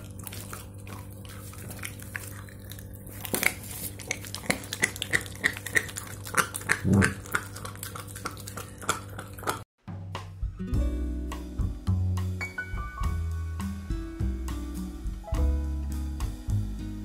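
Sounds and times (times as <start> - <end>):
teeth clicking and smacking: 0.0 - 9.6
puppy chewing and tearing meat: 0.0 - 9.7.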